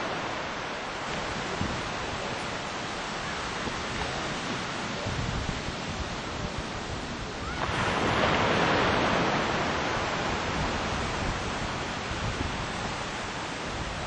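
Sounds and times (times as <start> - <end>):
ocean surf breaking: 0.0 - 14.0.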